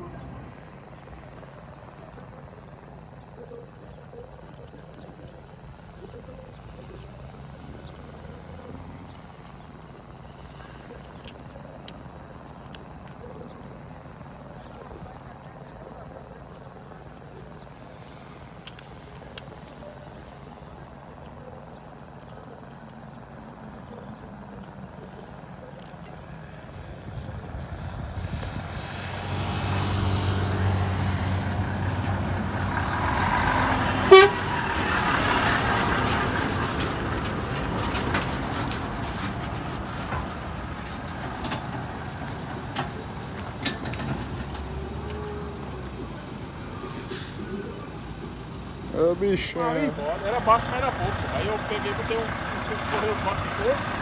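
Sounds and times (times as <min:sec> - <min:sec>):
truck diesel engine passing: 0:00.0 - 0:54.0
truck horn toot: 0:34.0 - 0:34.7.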